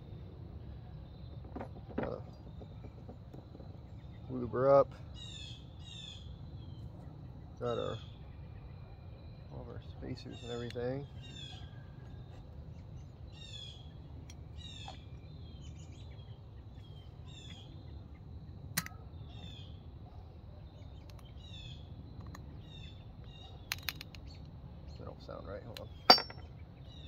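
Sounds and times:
birds chirping: 0:00.0 - 0:27.0
low outdoor rumble: 0:00.0 - 0:27.0
metal parts clicking: 0:26.1 - 0:26.5.

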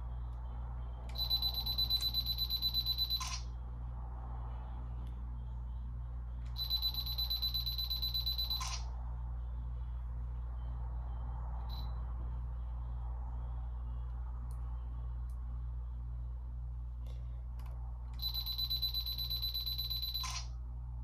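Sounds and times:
self-timer rapid high beeps: 0:01.1 - 0:03.4, 0:06.5 - 0:08.8, 0:18.2 - 0:20.4.

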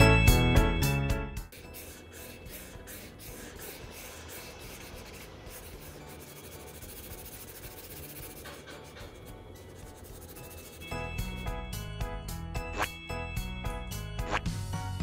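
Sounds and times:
marker scratching on paper: 0:01.4 - 0:11.3.

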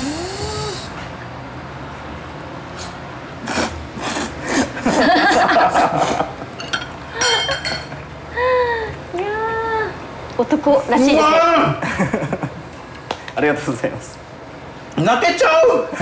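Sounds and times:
person slurping noodles: 0:03.4 - 0:04.9.

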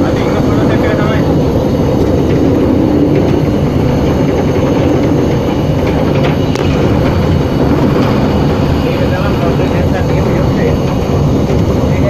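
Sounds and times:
diesel locomotive rumble: 0:00.0 - 0:12.0
wheels clicking over track: 0:00.0 - 0:12.0.

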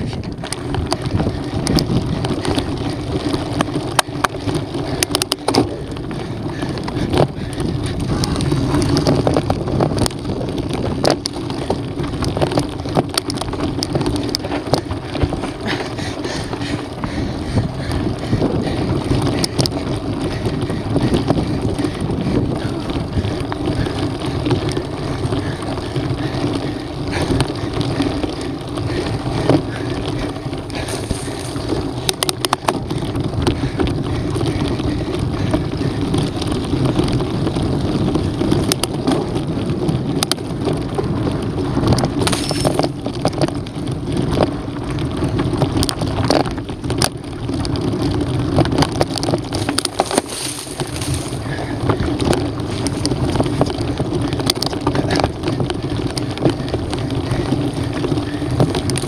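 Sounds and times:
bike and stones clicking and rattling: 0:00.0 - 0:59.0
bike tyres crunching on gravel: 0:00.0 - 0:59.0
wind on microphone: 0:00.0 - 0:59.0.

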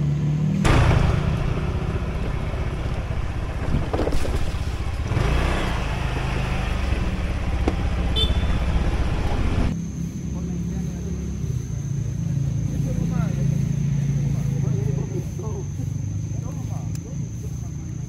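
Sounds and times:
motor scooter engine running: 0:00.6 - 0:09.7.

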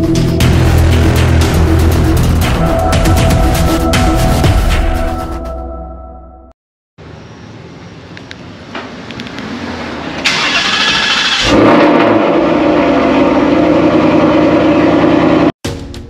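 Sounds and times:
car starter cranking: 0:10.2 - 0:12.2
car engine idling: 0:10.2 - 0:15.5.

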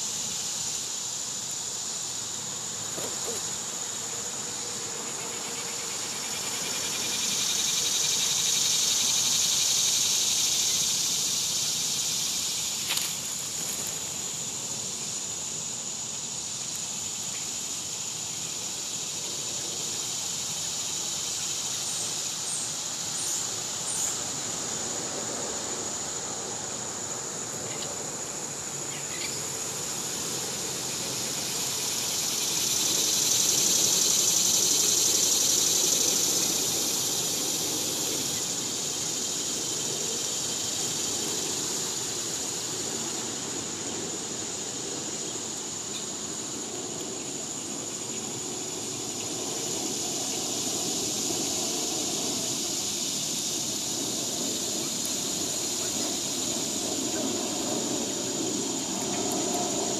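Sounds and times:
cicada buzzing: 0:00.0 - 0:59.9
insect chorus drone: 0:00.0 - 0:59.9.

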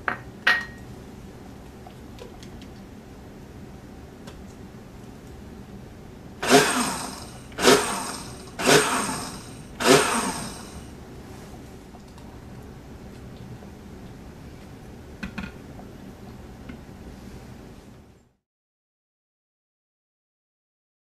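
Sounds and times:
blender pulsing: 0:06.4 - 0:10.9.

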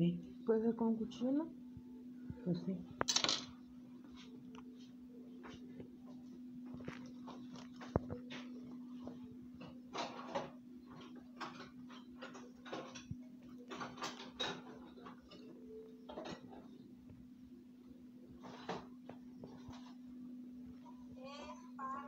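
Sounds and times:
steady low hum: 0:00.0 - 0:22.0
utensils tapping and clicking: 0:03.0 - 0:03.5, 0:09.6 - 0:16.7.

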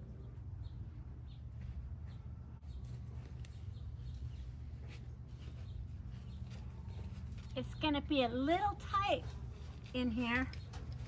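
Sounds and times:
steady low rumble: 0:00.0 - 0:07.6.

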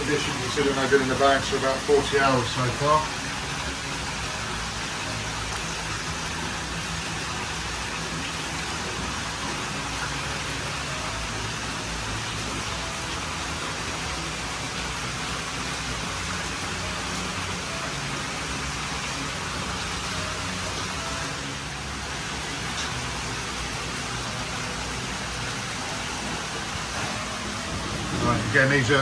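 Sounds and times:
water pouring and splashing: 0:00.0 - 0:29.0.

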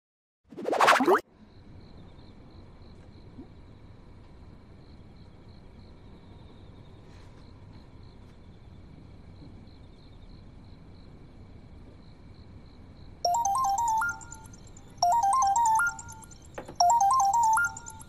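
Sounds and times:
faint steady background: 0:13.3 - 0:18.0
phone ringtone melody: 0:13.3 - 0:18.0.

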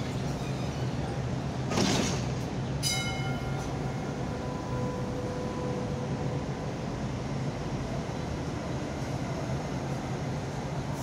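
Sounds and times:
tram motor whine: 0:02.3 - 0:11.0.

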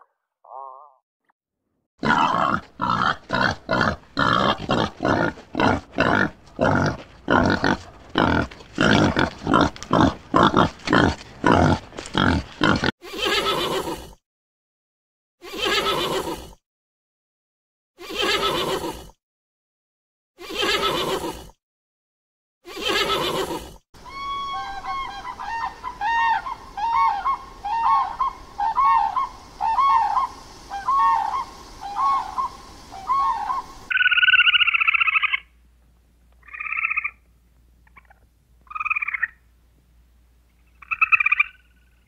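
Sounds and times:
wild boar grunting: 0:02.0 - 0:12.9
horse neighing: 0:02.0 - 0:13.9.

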